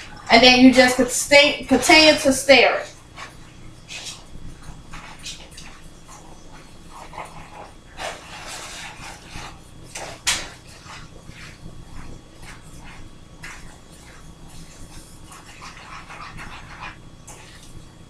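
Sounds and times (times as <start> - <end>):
low steady hum: 0.0 - 18.0
utensil scraping a skillet: 4.9 - 17.8.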